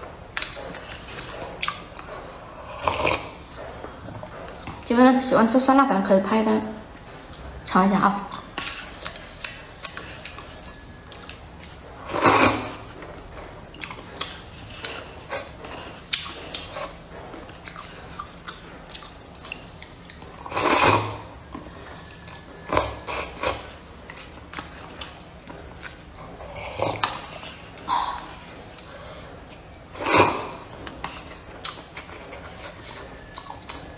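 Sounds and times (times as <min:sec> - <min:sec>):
loud slurping of noodles: 0:12.1 - 0:12.8, 0:20.4 - 0:21.3, 0:30.0 - 0:30.6.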